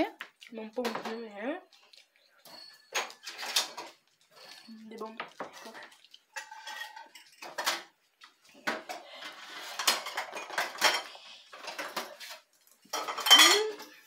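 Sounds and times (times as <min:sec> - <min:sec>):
metal spoon scraping dish: 0:02.5 - 0:04.8, 0:05.4 - 0:07.8.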